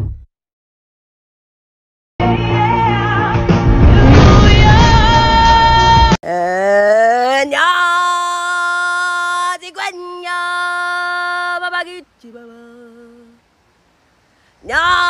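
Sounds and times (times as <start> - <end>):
person singing without words: 2.2 - 13.5, 14.6 - 15.0.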